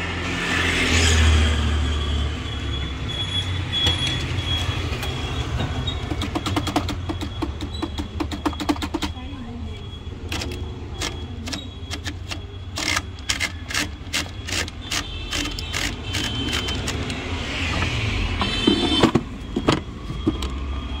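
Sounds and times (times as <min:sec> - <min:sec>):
typewriter carriage return ratcheting: 0:10.3 - 0:17.2
typewriter keys clacking: 0:10.3 - 0:17.2.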